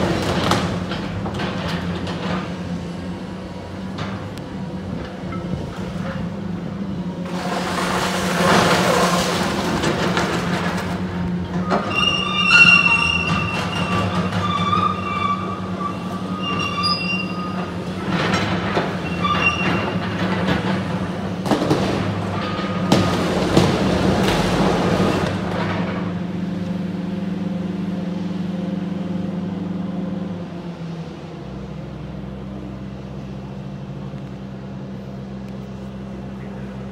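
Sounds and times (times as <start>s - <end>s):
excavator engine droning: 0.0s - 36.9s
high metal squeals: 11.6s - 18.0s, 19.0s - 20.1s.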